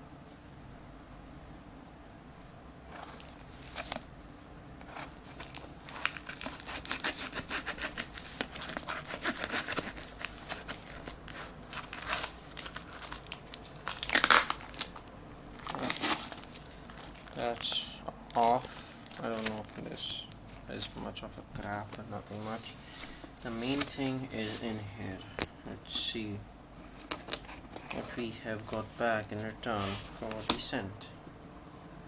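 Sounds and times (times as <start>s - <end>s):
plastic crinkling: 2.9s - 4.1s, 4.8s - 25.8s, 26.8s - 30.7s
tape ripping off cardboard: 4.8s - 15.0s, 15.6s - 17.5s.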